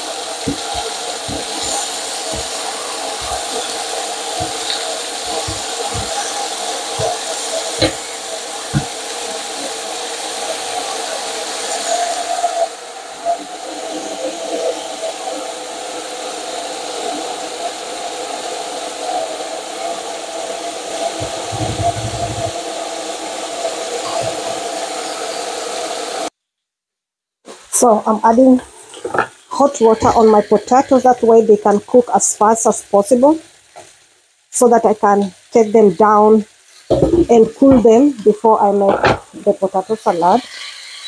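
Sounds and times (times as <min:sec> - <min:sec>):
ribs sizzling in a frying pan: 0:00.0 - 0:26.3, 0:27.6 - 0:41.0
steady whirring hum: 0:12.0 - 0:26.3.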